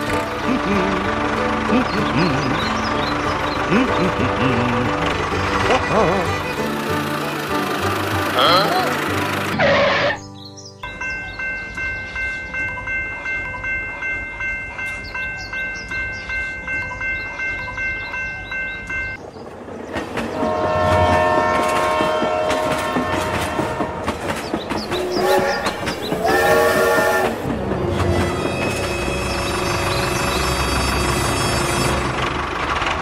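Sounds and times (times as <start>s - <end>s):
train wheels clattering on rails: 14.8s - 33.0s
steam locomotive whistle: 20.4s - 24.0s, 25.0s - 27.5s.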